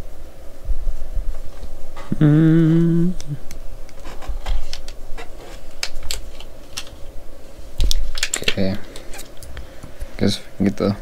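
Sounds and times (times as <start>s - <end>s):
man humming: 2.0s - 3.5s.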